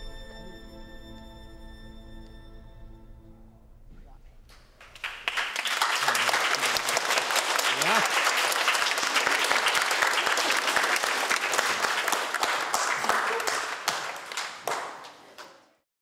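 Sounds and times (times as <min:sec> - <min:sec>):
people applauding: 0:04.7 - 0:15.8.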